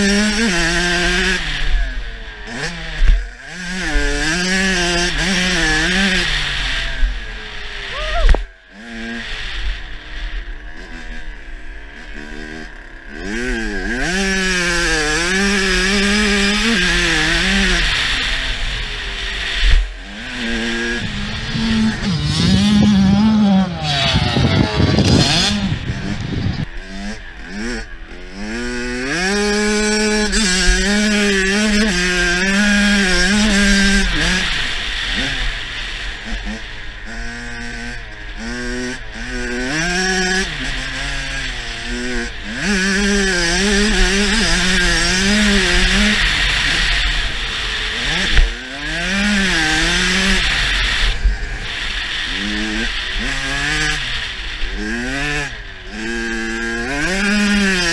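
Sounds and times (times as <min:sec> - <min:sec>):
dirt bike engine revving: 0:00.0 - 0:57.9
wind rush on microphone: 0:20.9 - 0:26.7.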